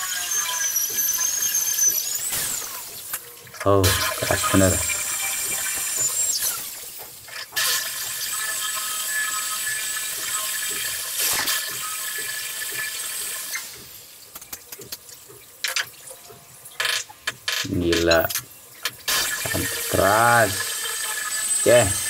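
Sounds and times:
electric drill boring into wall: 0.0s - 3.1s, 3.8s - 13.8s, 19.1s - 22.0s.

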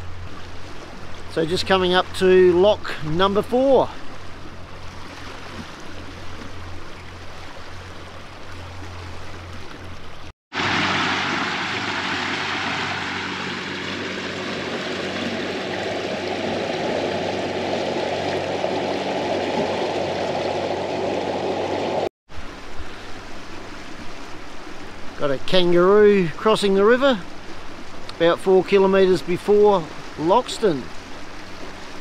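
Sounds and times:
boat motor hum: 0.0s - 32.0s
water rushing along hull: 0.0s - 32.0s.

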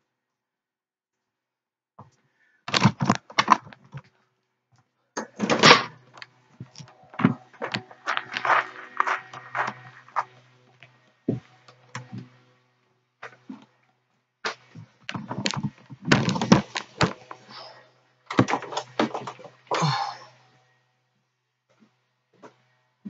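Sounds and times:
low steady hum: 5.1s - 21.8s.

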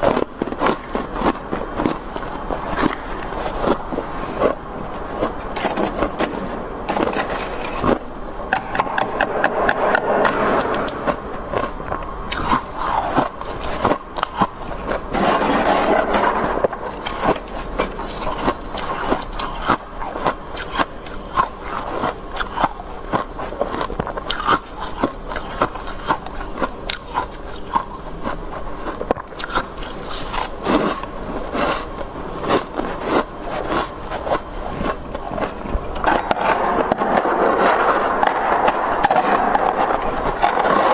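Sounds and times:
spoon scraping frost: 0.0s - 22.8s.

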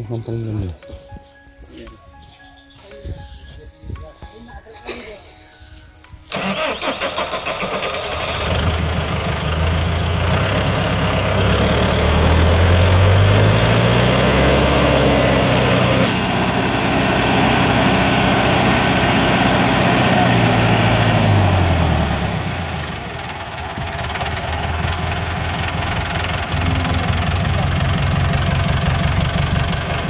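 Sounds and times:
tractor diesel engine under load: 6.3s - 30.0s.

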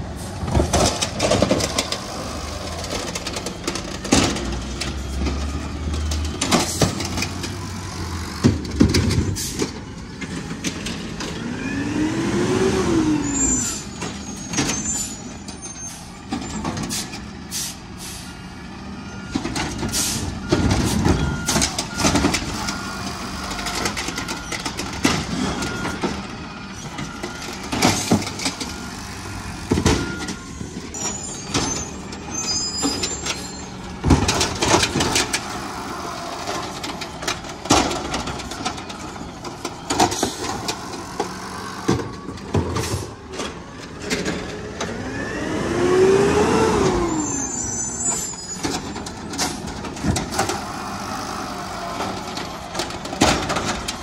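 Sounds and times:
diesel engine revving: 0.0s - 54.0s
carts knocking and clanking: 0.4s - 11.5s, 19.3s - 45.0s, 48.1s - 54.0s
air brake hissing: 16.9s - 18.4s, 19.9s - 20.3s.

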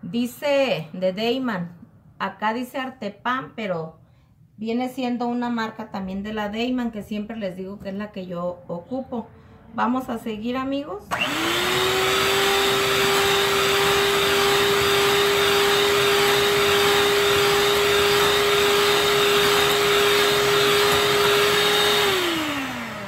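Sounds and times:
electric hand mixer whipping batter: 11.1s - 23.0s.

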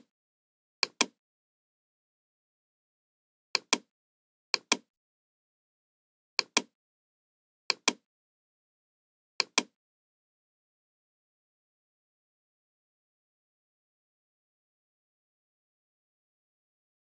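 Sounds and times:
computer mouse clicking: 0.8s - 1.2s, 3.6s - 3.9s, 4.6s - 4.9s, 6.4s - 6.7s, 7.7s - 8.0s, 9.4s - 9.7s.

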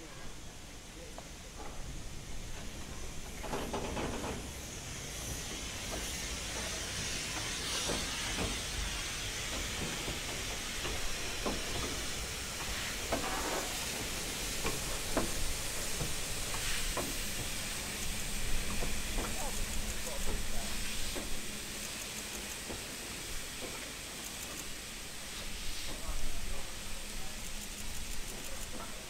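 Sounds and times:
steam hissing: 0.0s - 29.0s
locomotive wheels knocking and clanking: 2.5s - 4.6s, 5.5s - 24.7s.

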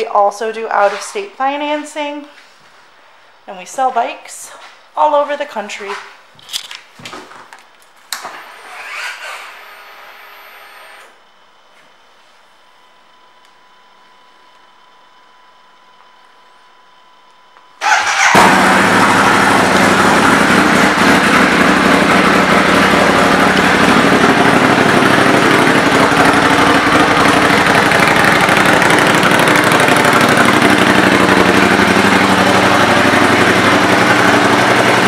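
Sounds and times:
motorcycle engine starting and running: 17.8s - 35.0s.

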